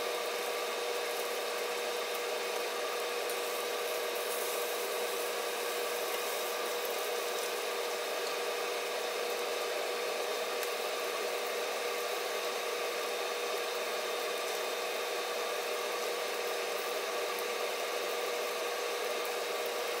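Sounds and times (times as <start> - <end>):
steak sizzling in a frying pan: 0.0 - 20.0.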